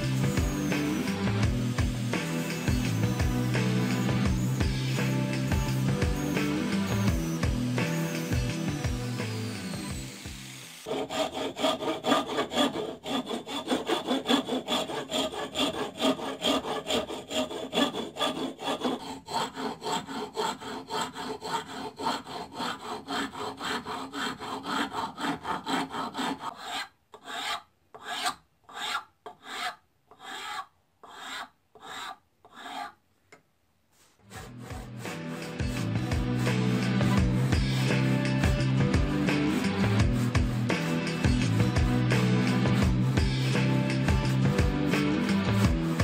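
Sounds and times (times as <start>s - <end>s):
hand tool strokes on wood: 9.4s - 33.0s, 33.9s - 38.4s.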